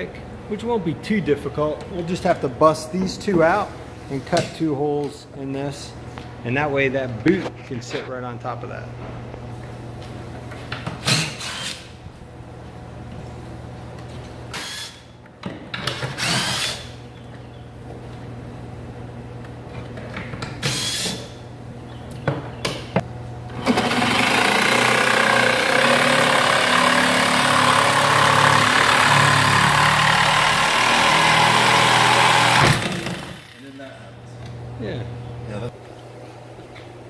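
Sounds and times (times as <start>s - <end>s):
jigsaw cutting wood: 23.6s - 33.6s.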